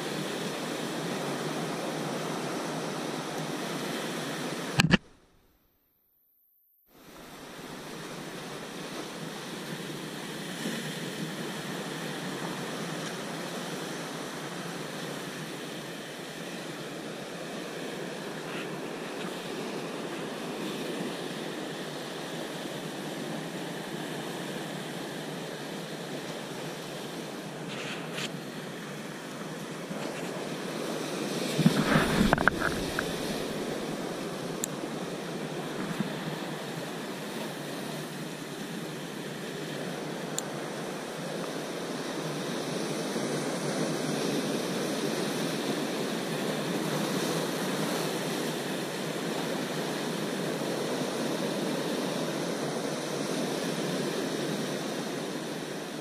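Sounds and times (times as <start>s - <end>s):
surf washing over rocks: 0.0s - 5.3s, 7.0s - 56.0s
knocks and rustling near microphone: 31.6s - 33.6s.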